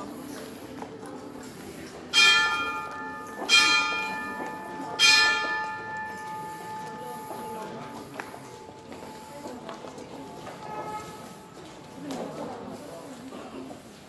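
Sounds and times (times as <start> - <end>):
church bell ringing: 2.1 - 9.2.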